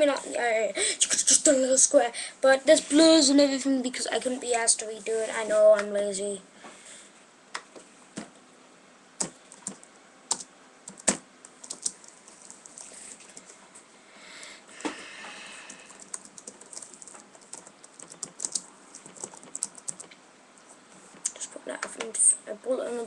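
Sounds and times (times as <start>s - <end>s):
typing on computer keyboard: 9.2s - 13.5s, 15.7s - 20.1s
soft rustling: 11.5s - 13.9s.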